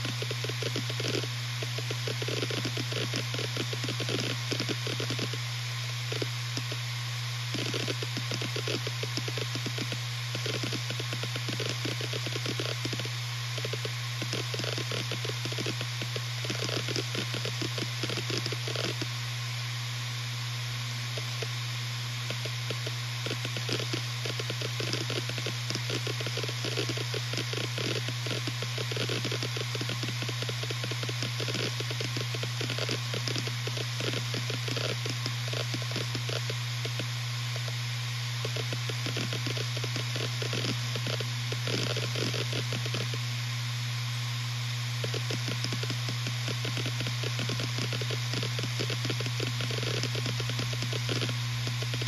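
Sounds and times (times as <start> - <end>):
hard drive head seek clicking: 0.0 - 5.4, 6.0 - 6.9, 7.5 - 19.1, 22.2 - 37.8, 38.4 - 43.2, 45.0 - 52.0
hard drive spindle hum: 0.0 - 52.0
steady hiss: 0.0 - 52.0
hard drive heads clicking: 7.5 - 19.1, 45.0 - 52.0.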